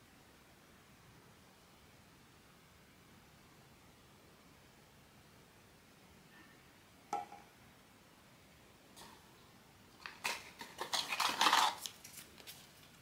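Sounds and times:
plastic clicks and crinkling: 10.0 - 13.0.

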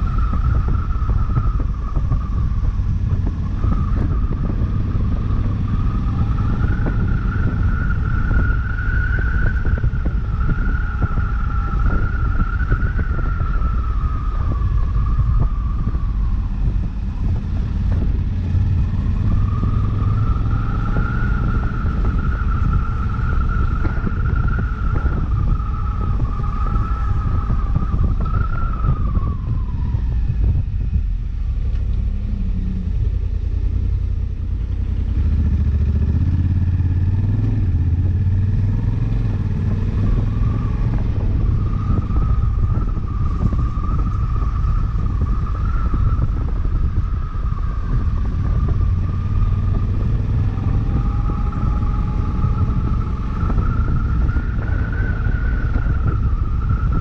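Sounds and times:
heavy wind rumble: 0.0 - 57.0.

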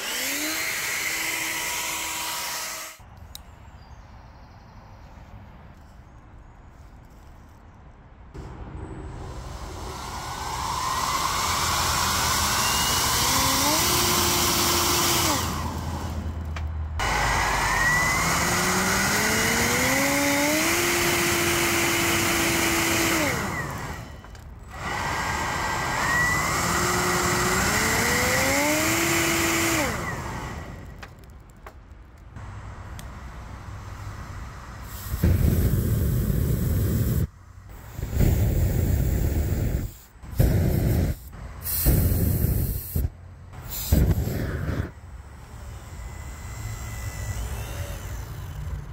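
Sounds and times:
rush of blown air: 8.4 - 12.1
ducted fan motor whine: 8.4 - 31.1, 32.4 - 48.9.

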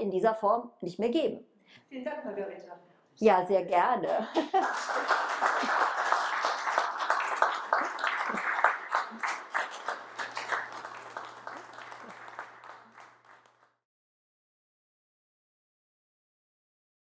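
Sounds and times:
audience applauding: 4.3 - 13.8.

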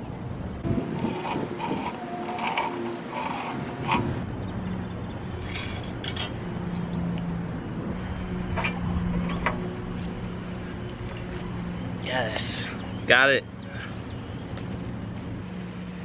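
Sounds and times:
low engine-like hum: 0.0 - 16.0
scraping strokes: 0.6 - 4.2.

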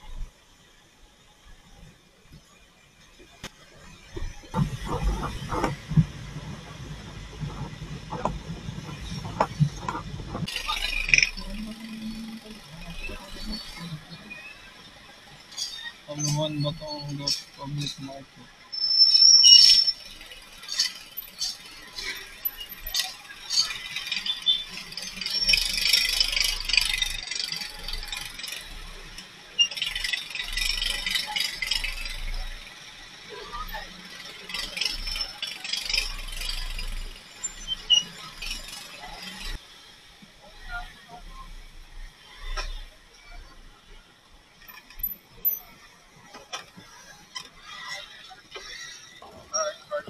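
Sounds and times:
faint road noise: 0.0 - 50.0.

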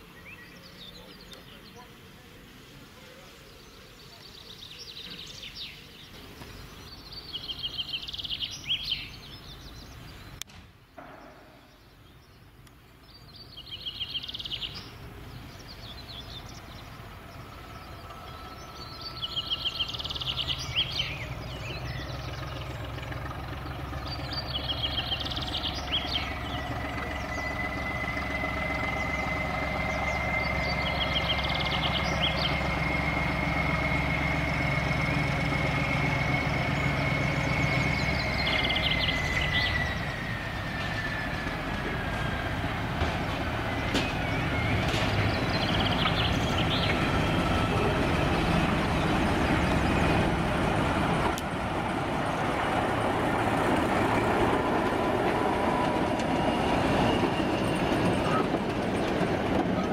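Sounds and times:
locomotive engine hum: 0.0 - 59.9
songbird trilling: 13.1 - 22.9, 24.1 - 28.0, 43.6 - 47.3.

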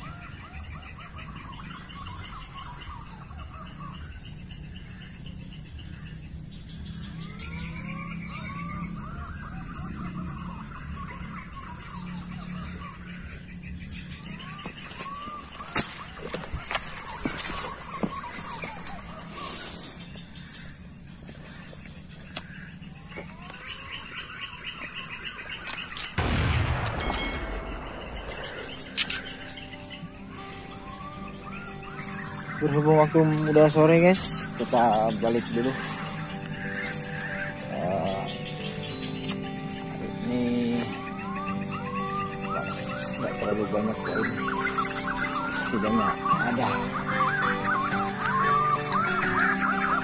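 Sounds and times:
whistled bird calls: 0.0 - 5.0, 6.7 - 20.6, 23.1 - 50.0
insects shrilling: 0.0 - 50.0
sharp click: 26.2 - 29.6
low hum: 26.2 - 31.8.

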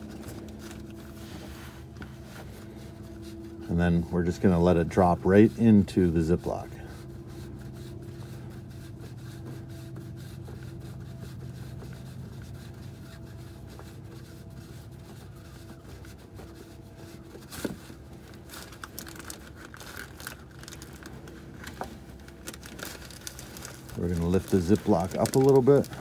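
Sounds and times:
steady low hum: 0.0 - 26.0
plastic bag crinkling: 18.0 - 26.0.

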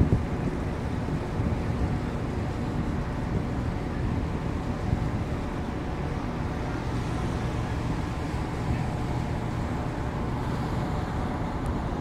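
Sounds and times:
ship engines low rumble: 0.0 - 12.0
wind across deck: 0.0 - 12.0.

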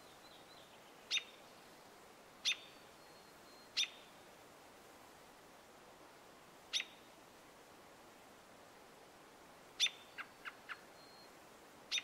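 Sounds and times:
robin peek calls: 2.4 - 2.8, 9.8 - 11.2.

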